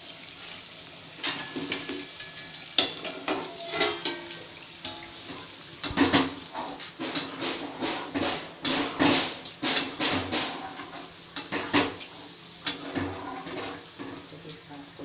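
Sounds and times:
spatula scraping a steel pan: 1.4 - 5.4, 12.7 - 14.2.

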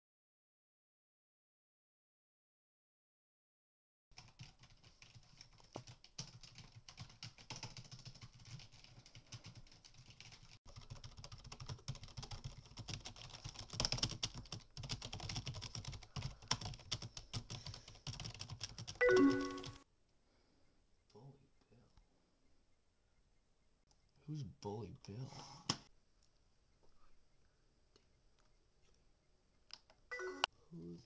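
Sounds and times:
fast typing on keyboard: 4.1 - 19.8.

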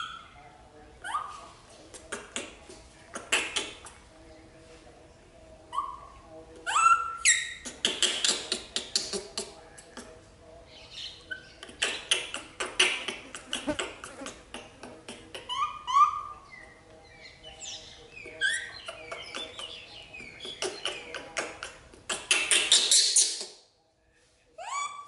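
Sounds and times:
monkey chirping: 6.7 - 9.1, 15.4 - 16.7, 18.4 - 21.1.

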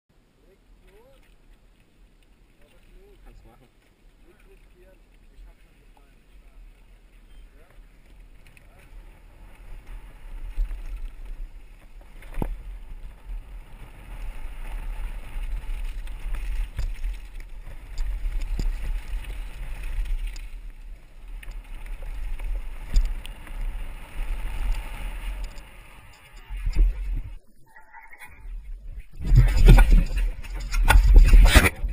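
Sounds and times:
wind and tyres on dirt rumble: 0.1 - 31.9
bike wheels knocking on bumps: 8.0 - 27.4.

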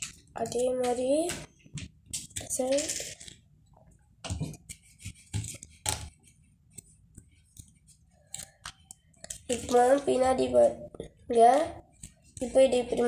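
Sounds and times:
paper crinkling and rustling: 2.2 - 3.4, 4.4 - 10.3.

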